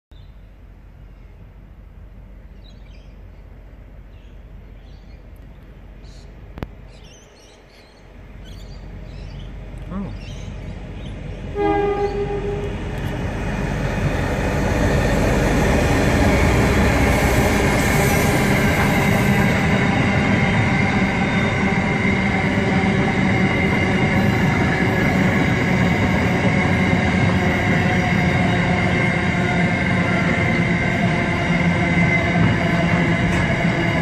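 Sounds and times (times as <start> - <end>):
locomotive engine rumble: 0.6 - 34.0
train wheels rolling on rail: 1.7 - 34.0
locomotive horn blast: 11.5 - 13.1.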